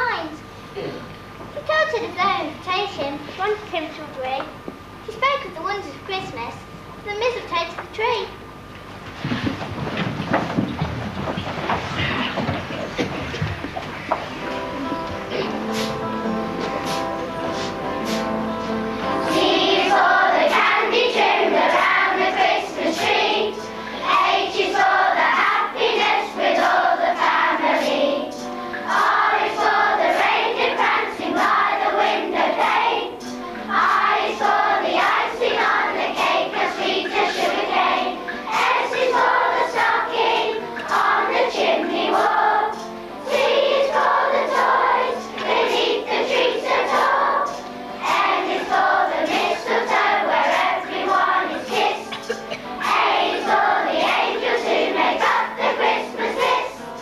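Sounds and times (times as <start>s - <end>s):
children's choir singing: 14.0s - 57.0s.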